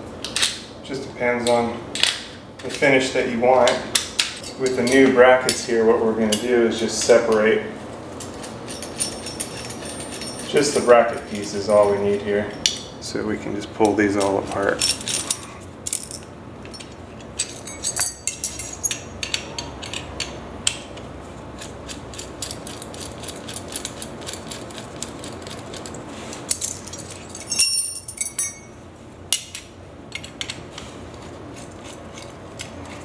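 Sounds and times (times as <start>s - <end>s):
ringing metal clinks: 8.6s - 13.0s, 16.0s - 19.1s, 26.6s - 28.8s
screwdriver clicking and scraping: 30.1s - 33.0s.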